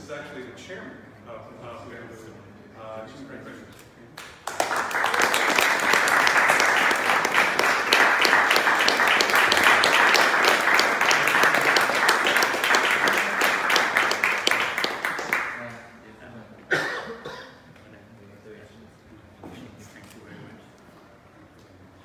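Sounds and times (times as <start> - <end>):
people applauding: 4.2 - 15.9.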